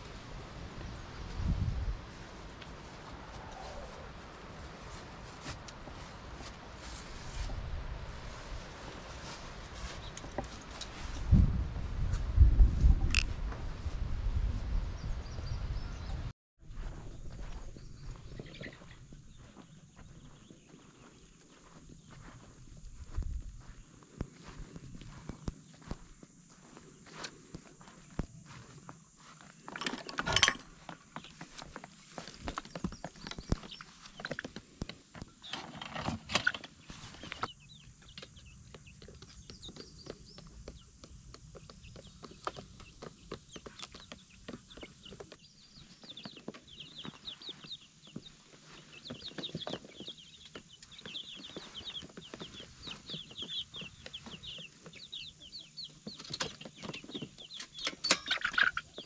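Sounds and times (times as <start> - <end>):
chicks peeping and clucking: 16.8 - 28.8, 36.4 - 59.0.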